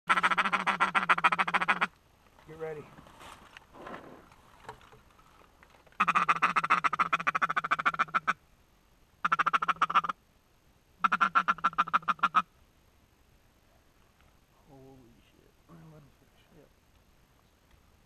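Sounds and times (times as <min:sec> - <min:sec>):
duck call quacking: 0:00.1 - 0:01.9, 0:06.0 - 0:08.4, 0:09.2 - 0:10.2, 0:11.0 - 0:12.5.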